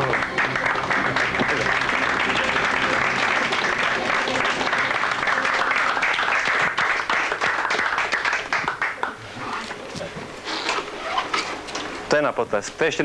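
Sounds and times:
studio audience applauding: 0.0s - 9.2s.

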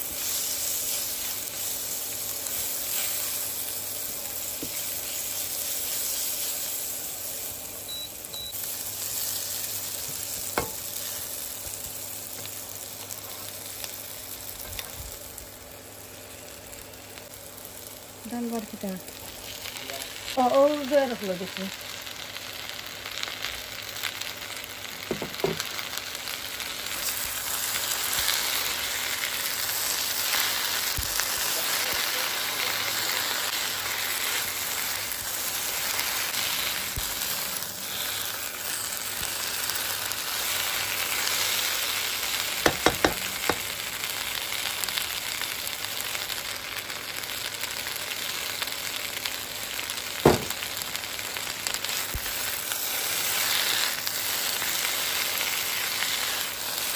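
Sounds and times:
spatula stirring in a pan: 0.0s - 7.4s, 8.8s - 12.4s, 51.7s - 56.9s
okra sizzling in a frying pan: 0.0s - 56.9s
sharp knocks: 50.2s - 50.5s.

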